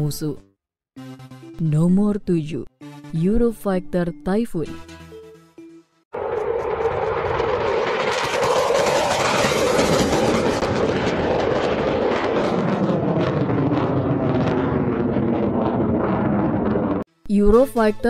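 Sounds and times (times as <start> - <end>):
jet flying past low: 6.2 - 17.1.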